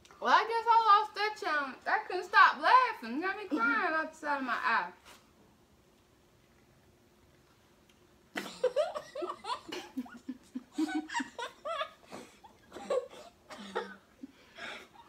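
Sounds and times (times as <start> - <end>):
people laughing: 8.4 - 13.2.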